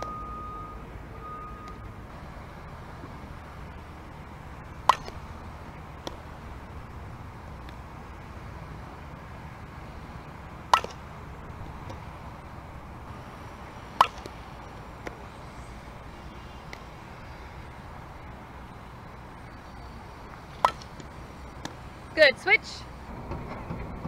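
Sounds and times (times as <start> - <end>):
low outdoor background noise: 0.0 - 24.0
bat hitting softball: 4.7 - 5.3, 6.0 - 6.3, 10.5 - 12.0, 13.7 - 15.2, 20.3 - 21.8.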